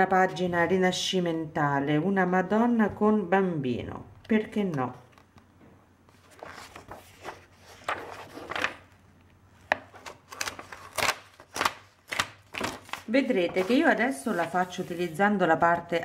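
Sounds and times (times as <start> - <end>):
magazine pages rustling: 6.1 - 9.0, 9.6 - 15.2
sharp paper snaps: 10.3 - 13.1.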